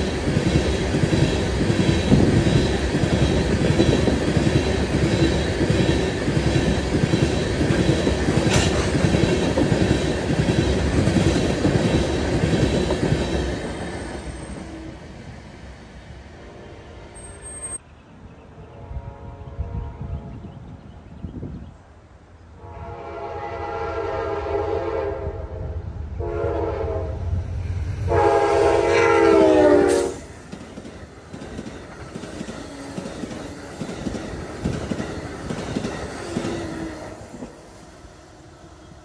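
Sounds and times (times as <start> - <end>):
train wheels clacking on rails: 0.0 - 15.0, 29.2 - 37.8
train horn blasts: 16.3 - 17.8, 18.5 - 20.6, 22.6 - 27.4, 28.1 - 30.3.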